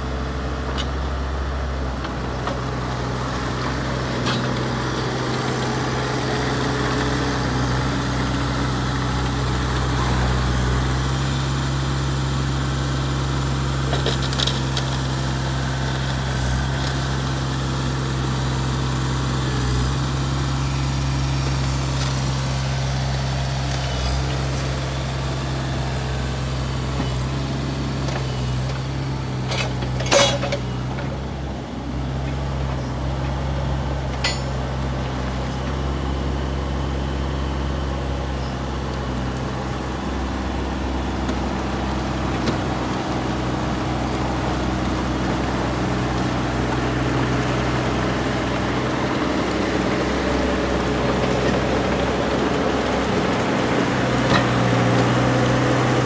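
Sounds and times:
excavator diesel engine running: 0.0s - 56.0s
sharp metallic clinks: 34.2s - 34.6s.

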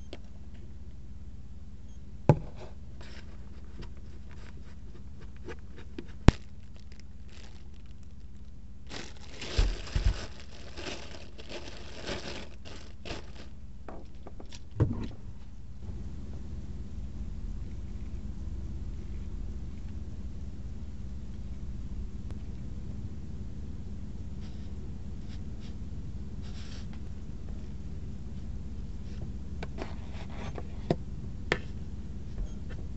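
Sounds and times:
steady low hum: 0.0s - 32.9s
plastic packaging crinkling: 6.1s - 14.2s.

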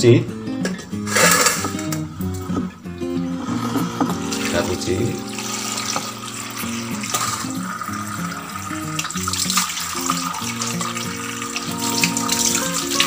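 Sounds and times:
background music with steady melody: 0.0s - 13.0s
water splashing in a bowl: 5.8s - 13.0s.

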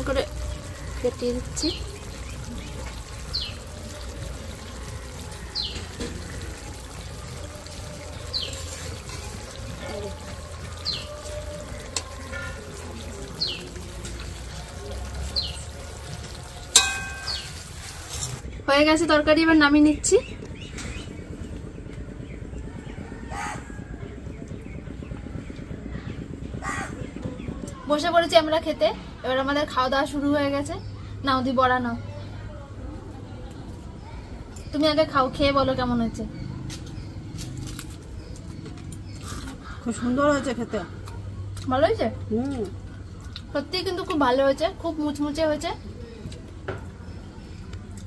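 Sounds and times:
low outdoor rumble: 0.0s - 48.0s
high falling chirp: 16.8s - 17.7s.

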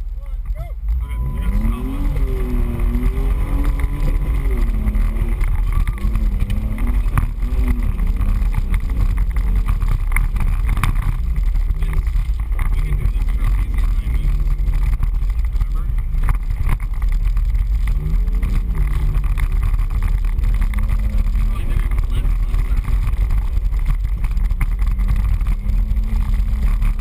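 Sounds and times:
engine revving from inside cab: 0.8s - 27.0s.

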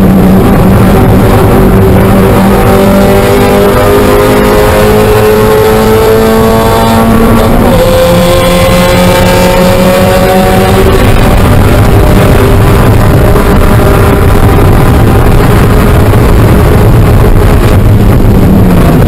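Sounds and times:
car engine at full throttle: 0.0s - 19.0s
wind and road noise: 0.0s - 19.0s.

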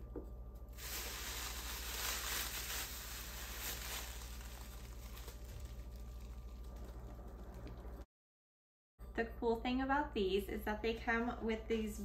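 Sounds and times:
bubble wrap crinkling: 0.8s - 8.0s.

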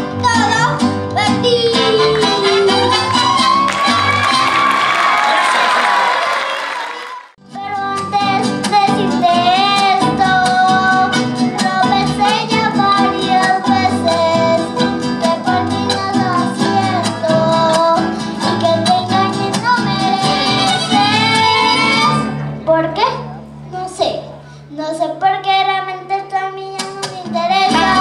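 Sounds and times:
strummed guitars: 0.0s - 4.7s, 7.4s - 23.6s, 26.4s - 28.0s
bass guitar line: 0.0s - 4.9s, 7.4s - 24.5s
violins: 19.6s - 22.6s.

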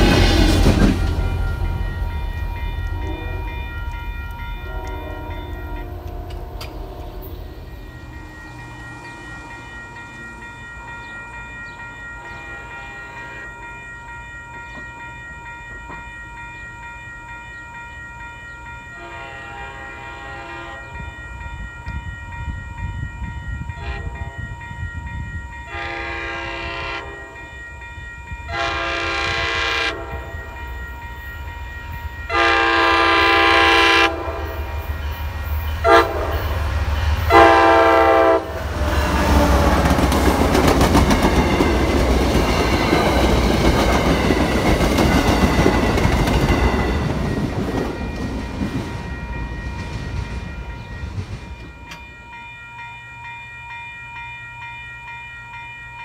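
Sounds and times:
train low rumble: 0.0s - 56.0s
train horn blasts: 2.8s - 3.8s, 4.5s - 7.5s, 12.2s - 13.5s, 18.9s - 21.2s, 23.6s - 24.7s, 25.7s - 27.6s, 28.4s - 30.7s, 32.2s - 34.9s, 35.8s - 36.6s, 37.2s - 40.0s.

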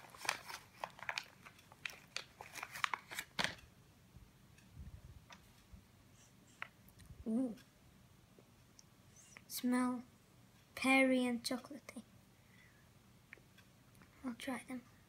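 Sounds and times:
snack wrapper crinkling: 0.0s - 3.6s.

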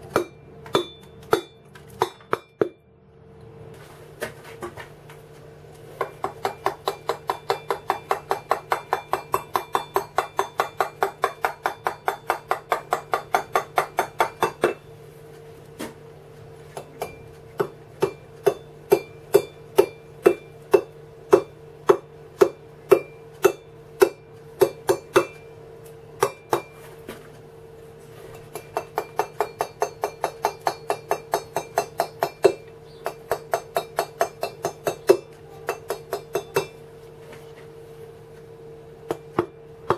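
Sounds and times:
mallet tapping chisel on stone: 6.0s - 14.8s, 28.5s - 36.8s.

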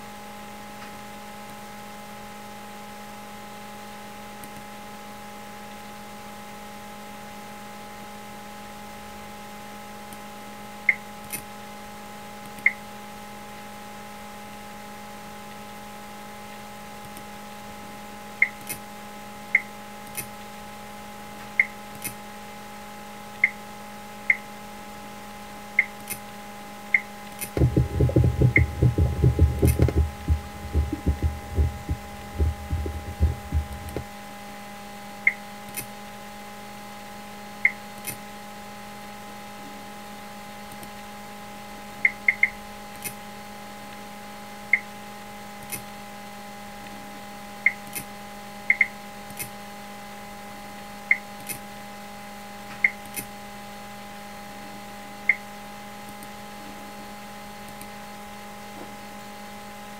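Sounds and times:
electrical hum: 0.0s - 59.9s
sharp interface clicks: 27.4s - 34.0s
low heartbeat sound effect: 27.6s - 34.0s.

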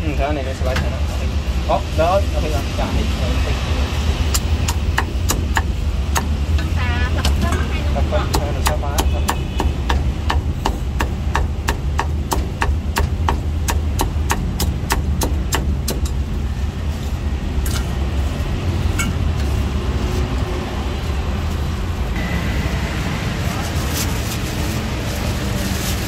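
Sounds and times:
cleaver chopping on wooden block: 4.3s - 6.4s, 8.3s - 16.1s.

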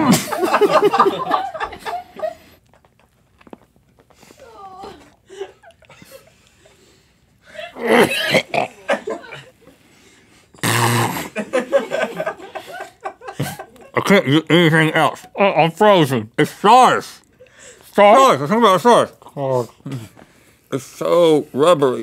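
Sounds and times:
men gagging: 0.0s - 2.6s, 7.5s - 9.8s, 10.6s - 15.8s.

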